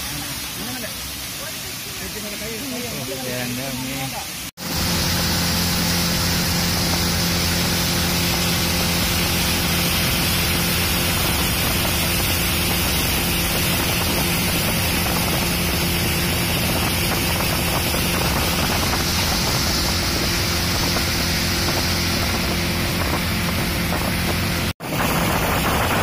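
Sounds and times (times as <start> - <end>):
water and wind rushing: 0.0 - 26.0
motorboat engine running: 4.3 - 26.0.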